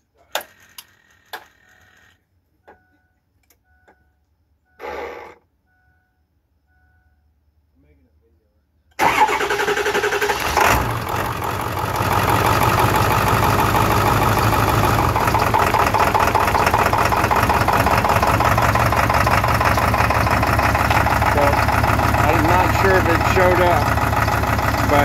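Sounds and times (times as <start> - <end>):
diesel engine cranking: 8.9 - 25.0
diesel engine idling: 9.0 - 25.0.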